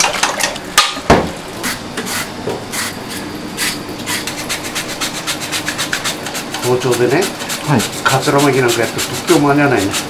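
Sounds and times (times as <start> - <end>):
radish grating on plastic grater: 4.1 - 10.0.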